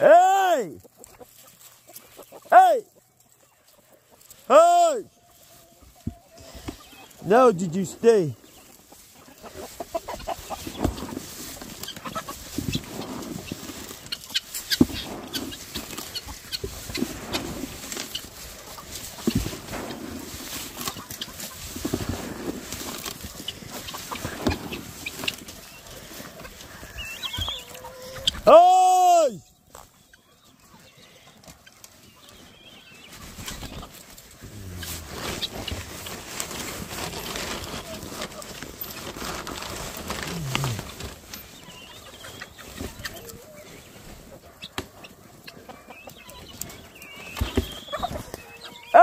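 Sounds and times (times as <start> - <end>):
chickens clucking and chirping: 0.8 - 4.5, 5.1 - 28.4, 29.4 - 49.0
rustling noise: 5.2 - 28.5, 31.7 - 44.5
poultry low cooing call: 34.4 - 36.0, 39.8 - 41.2.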